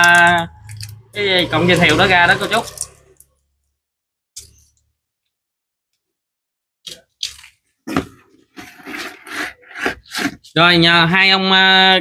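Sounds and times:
plastic and metal parts scraping and clicking: 0:06.9 - 0:10.5.

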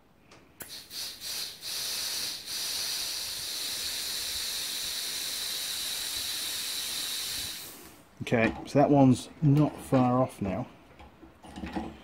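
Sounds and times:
short air puffs: 0:00.5 - 0:08.1
compressed air hissing: 0:00.6 - 0:08.1.

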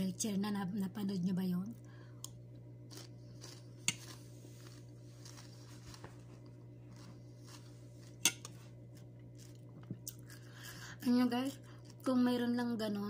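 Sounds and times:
steady low hum: 0:00.0 - 0:13.0
person chewing: 0:02.2 - 0:10.7.

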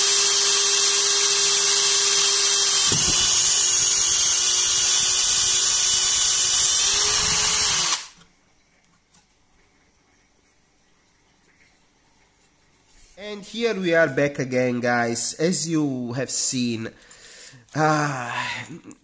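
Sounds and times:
cordless drill whining: 0:00.0 - 0:08.2.

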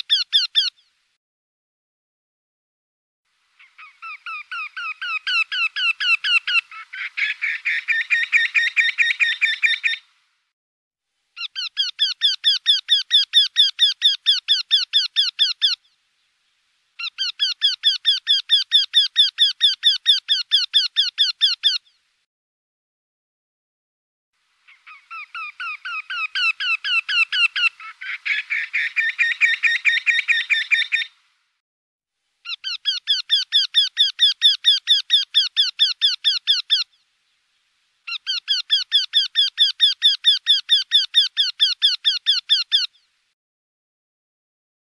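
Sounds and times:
bird calling rapidly: 0:00.0 - 0:01.0, 0:03.6 - 0:10.1, 0:11.4 - 0:16.0, 0:17.0 - 0:22.0, 0:24.6 - 0:31.2, 0:32.4 - 0:37.0, 0:38.0 - 0:43.1.

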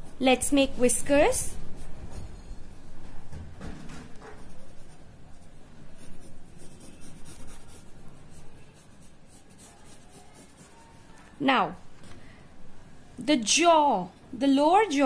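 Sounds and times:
drawing tool scratching on paper: 0:04.3 - 0:11.2.

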